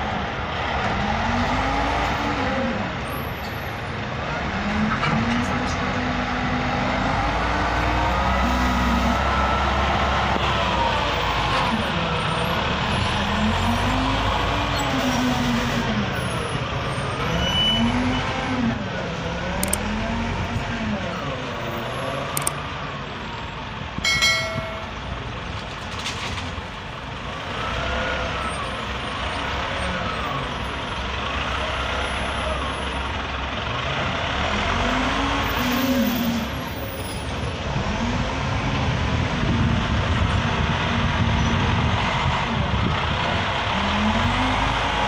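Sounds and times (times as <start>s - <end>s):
wheel loader diesel engine revving: 0.0s - 3.0s, 4.2s - 23.7s, 26.5s - 45.0s
metallic clank: 24.1s - 25.0s.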